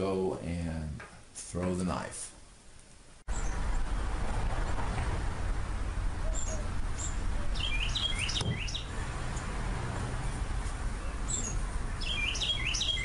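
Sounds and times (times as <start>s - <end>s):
small birds chirping: 3.3s - 3.8s, 6.2s - 9.5s, 10.2s - 13.0s
low rumble: 3.3s - 7.6s.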